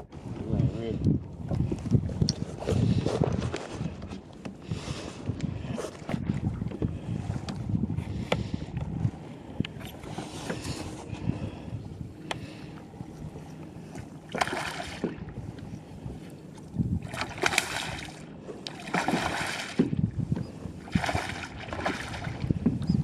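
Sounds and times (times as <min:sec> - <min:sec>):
wind on microphone: 0:00.0 - 0:18.3, 0:18.9 - 0:23.0
fish splashing water: 0:14.2 - 0:15.3, 0:17.0 - 0:19.9, 0:20.8 - 0:22.5.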